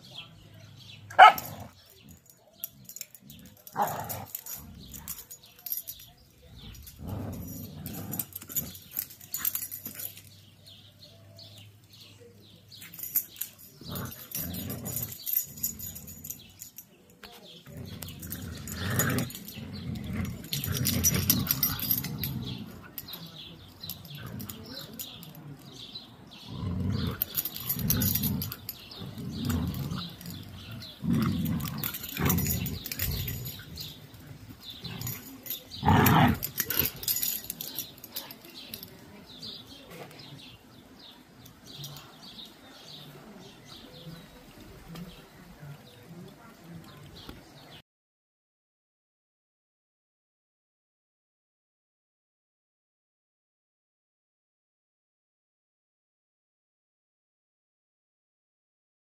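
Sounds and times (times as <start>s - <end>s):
dogs play growling: 0.6s - 10.8s, 12.9s - 39.6s.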